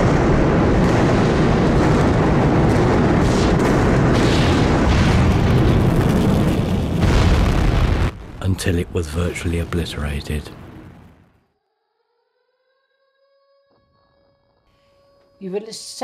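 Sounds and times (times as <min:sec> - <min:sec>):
rumbling roar of explosions: 0:00.0 - 0:11.4.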